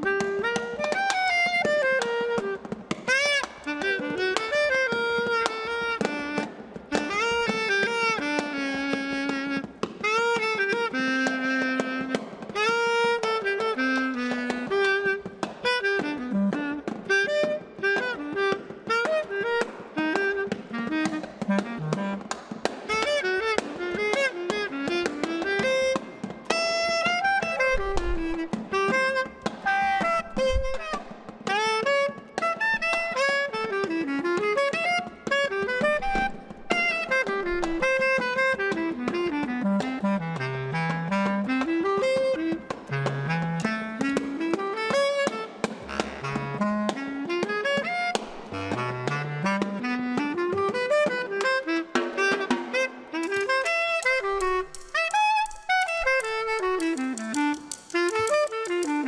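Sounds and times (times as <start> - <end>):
muffled snare drum taps and rolls: 0.0 - 59.0
reed woodwind melodic runs: 0.0 - 59.0.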